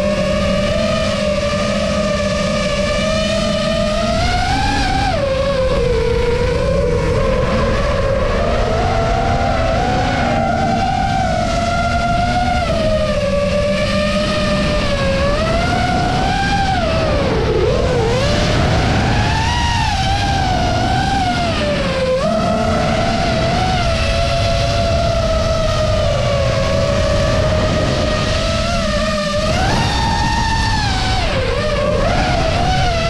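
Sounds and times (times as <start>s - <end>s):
drone motors whining: 0.0s - 33.0s
wind rushing: 14.4s - 33.0s.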